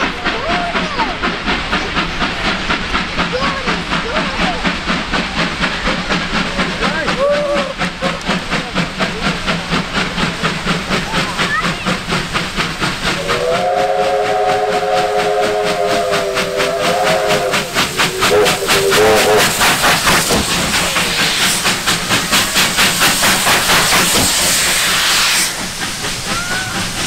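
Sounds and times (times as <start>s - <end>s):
steam hiss: 0.0s - 27.0s
steam locomotive exhaust beats: 0.0s - 27.0s
steam whistle: 13.2s - 19.7s.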